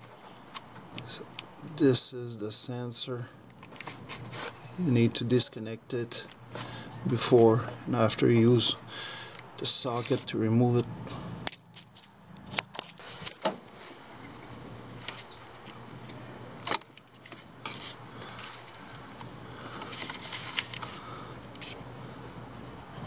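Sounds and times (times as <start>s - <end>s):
tool scraping plastic parts: 9.8s - 10.3s, 16.7s - 18.8s, 19.7s - 21.8s.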